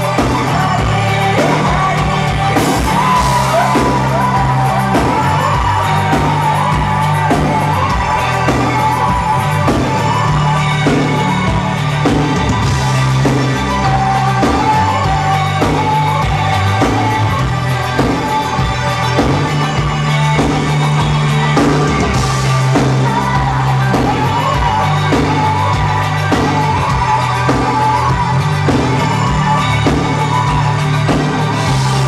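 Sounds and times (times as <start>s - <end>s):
live rock band playing: 0.0s - 32.0s.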